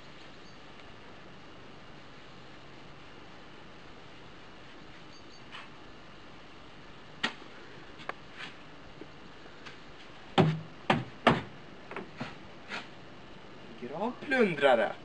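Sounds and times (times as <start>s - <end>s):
loud thuds: 10.4s - 12.1s.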